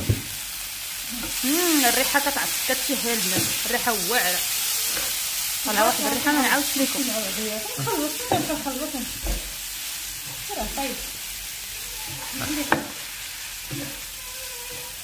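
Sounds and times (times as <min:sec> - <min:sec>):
food sizzling in a frying pan: 0:00.0 - 0:15.0
wooden spoons knocking on pan: 0:12.1 - 0:13.0.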